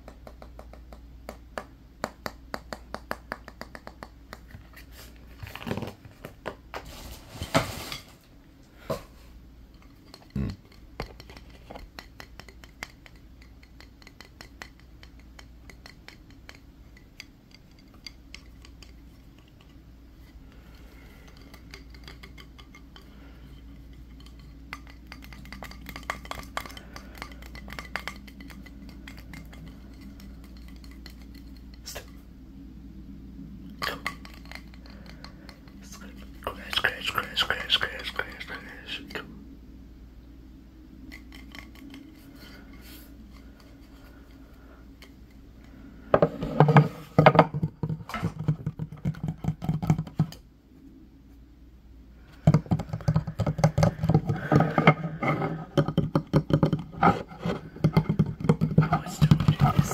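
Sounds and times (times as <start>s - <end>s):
fingers tapping on wood: 0.0s - 4.6s, 9.8s - 19.8s, 24.1s - 31.8s, 46.2s - 50.4s, 52.4s - 55.0s, 55.7s - 59.9s.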